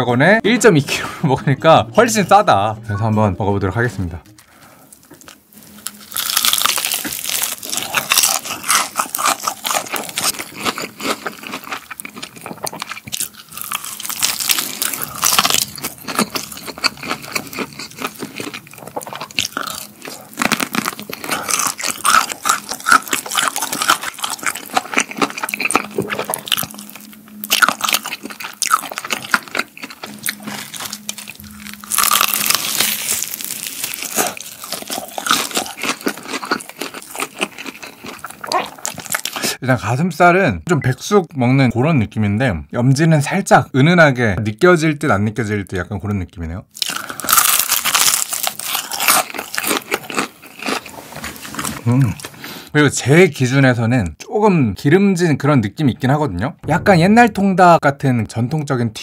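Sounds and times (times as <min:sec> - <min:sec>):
chewing crispy fried chicken: 0:04.4 - 0:39.6, 0:46.7 - 0:52.4.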